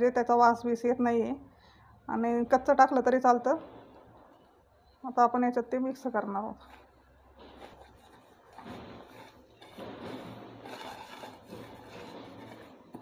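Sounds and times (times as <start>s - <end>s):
hand rubbing dry mixture in bowl: 7.5s - 13.0s.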